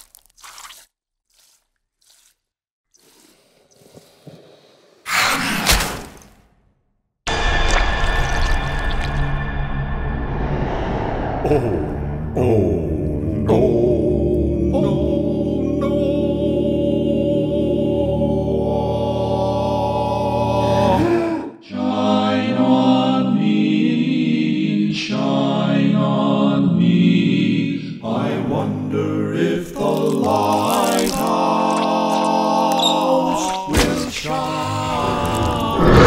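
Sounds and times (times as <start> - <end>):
quartet singing in close harmony: 13.6 - 21.0, 21.7 - 36.0.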